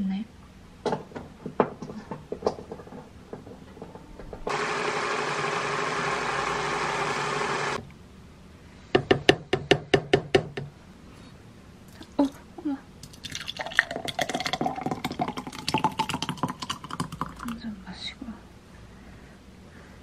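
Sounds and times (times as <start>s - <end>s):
hand blender running: 4.5s - 7.8s.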